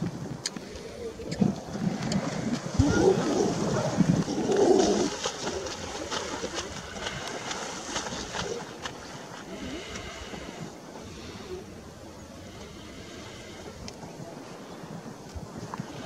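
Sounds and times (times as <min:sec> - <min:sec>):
seals moaning growls: 0:02.2 - 0:05.8.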